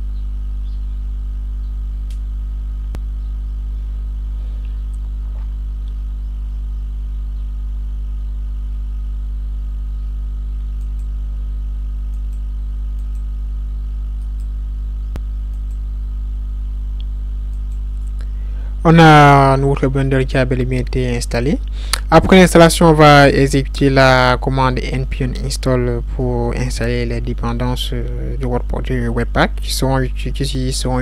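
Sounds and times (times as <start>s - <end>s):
low electrical hum: 0.0s - 31.0s
faint clicks: 10.8s - 11.1s, 12.1s - 13.3s.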